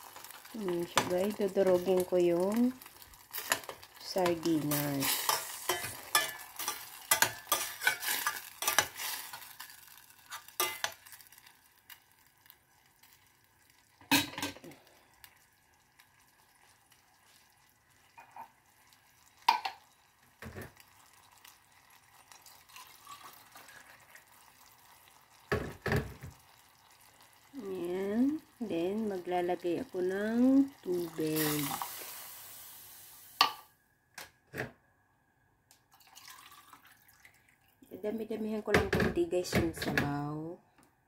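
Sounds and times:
sauce sizzling: 0.0s - 33.8s, 35.9s - 37.6s
metal spoon scraping saucepan: 3.4s - 9.0s.

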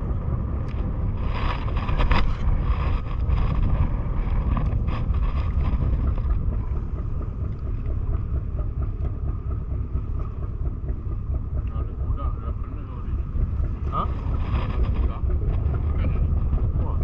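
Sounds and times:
water noise: 0.0s - 17.0s
wind buffeting microphone: 0.0s - 17.0s.

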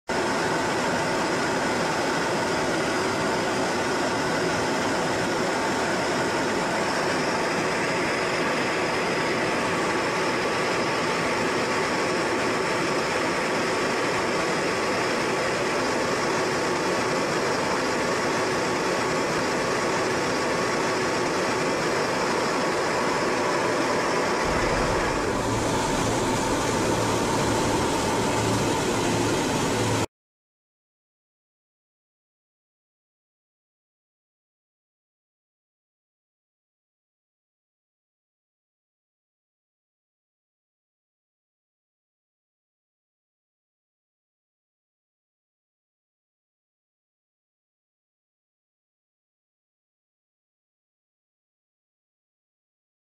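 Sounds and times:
steady whining tones: 0.2s - 30.1s
jet cabin rushing noise: 22.5s - 30.1s
low hum: 22.7s - 30.1s.

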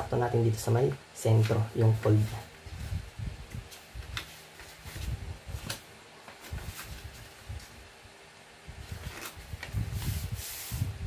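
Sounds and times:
paper rustling and sliding: 1.4s - 7.8s, 8.8s - 11.0s.

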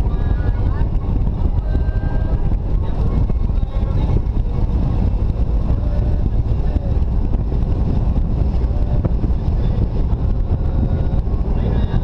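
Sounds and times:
car engine and road noise: 0.0s - 12.0s
wind on microphone: 0.0s - 12.0s.

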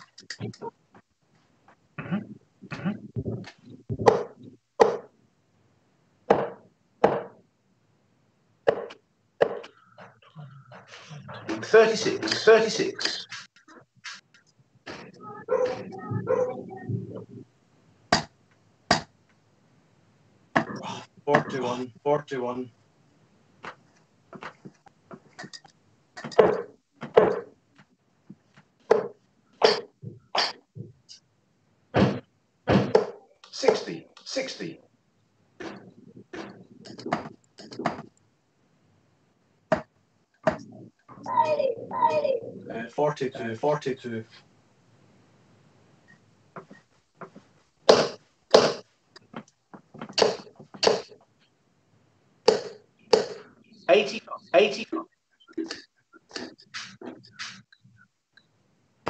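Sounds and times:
throat-clearing: 2.0s - 3.5s, 29.6s - 30.7s.

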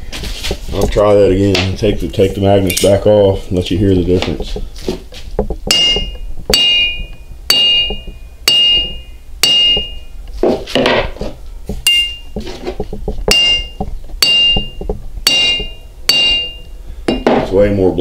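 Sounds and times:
hammer striking anvil: 5.7s - 10.1s, 11.9s - 12.4s, 13.3s - 17.5s
scraping clatter: 12.3s - 15.1s.

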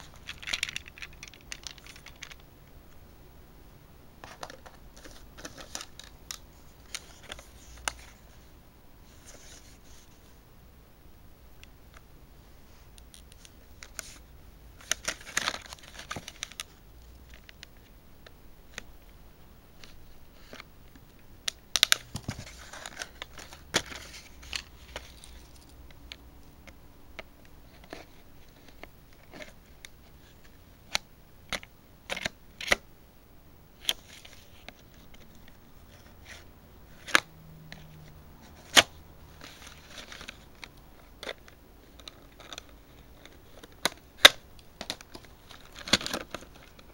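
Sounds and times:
plastic crinkling: 0.0s - 2.5s, 33.8s - 46.9s.

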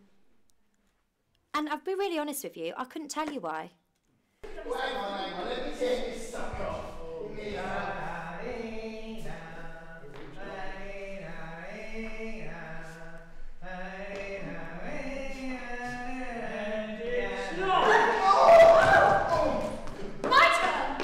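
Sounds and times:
voices singing slow tune: 4.4s - 19.8s.

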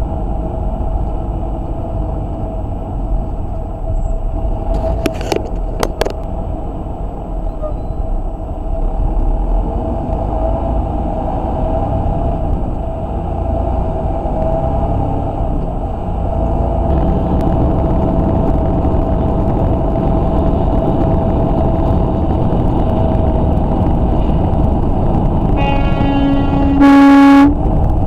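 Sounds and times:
diesel engine and road rumble: 0.0s - 28.0s.

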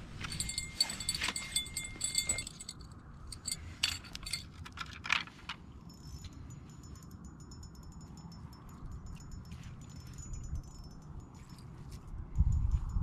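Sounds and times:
metal fishing tackle jingling: 0.1s - 13.0s
bright metallic ringing: 0.2s - 4.4s.

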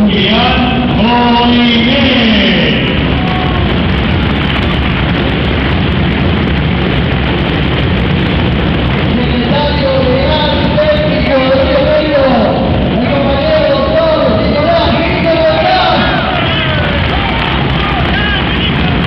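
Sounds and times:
crowd cheering and clapping: 3.0s - 7.5s, 14.6s - 19.0s.

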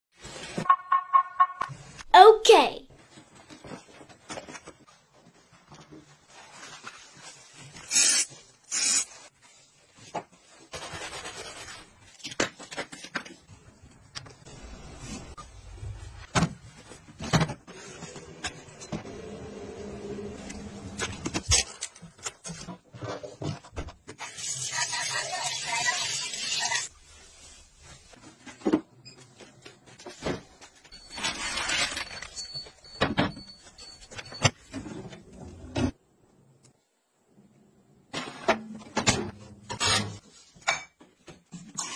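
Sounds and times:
aerosol can spraying: 7.9s - 9.1s.

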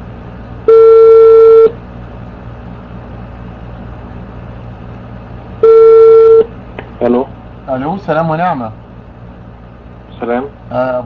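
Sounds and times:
low hum of line noise: 0.0s - 11.0s
telephone ringback tone: 0.7s - 1.8s, 5.6s - 6.5s.

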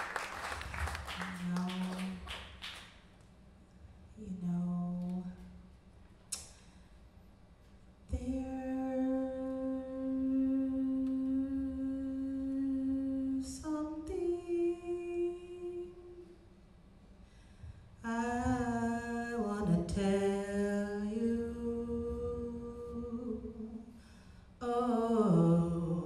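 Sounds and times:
woman singing long held notes: 1.1s - 2.4s, 4.2s - 5.5s, 8.1s - 16.3s, 18.0s - 24.0s, 24.6s - 26.0s
breaths: 6.4s - 7.2s, 17.1s - 18.0s, 23.8s - 24.6s.

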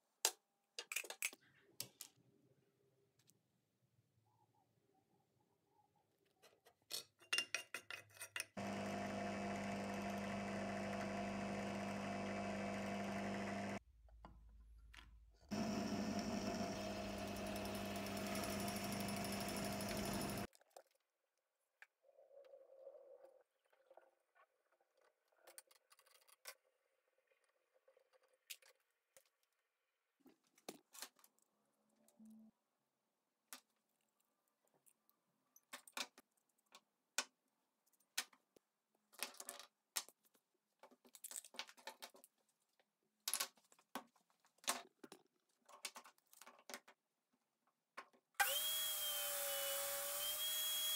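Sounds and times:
drill press motor humming: 8.6s - 13.8s, 15.5s - 20.5s, 48.4s - 50.9s.

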